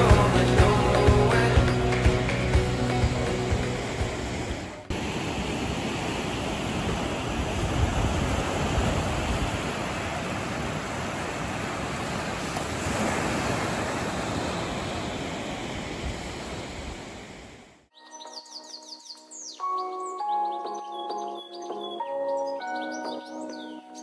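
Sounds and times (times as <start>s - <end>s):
small waves lapping on beach: 3.6s - 17.6s.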